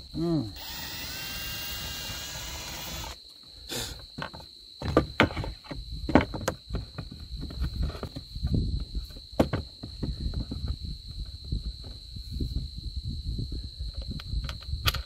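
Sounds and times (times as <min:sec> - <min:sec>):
cordless drill whining: 0:00.6 - 0:03.2
knocks and clatter on wood: 0:04.2 - 0:10.8.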